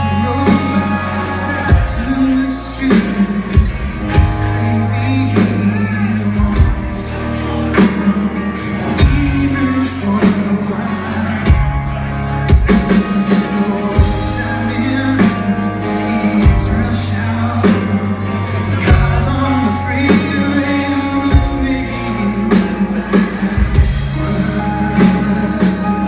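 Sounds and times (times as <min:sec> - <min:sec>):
acoustic guitar: 0:00.0 - 0:26.0
drum kit steady beat: 0:00.0 - 0:26.0
electric bass: 0:00.0 - 0:26.0
electric guitar: 0:00.0 - 0:26.0
man singing: 0:00.0 - 0:26.0.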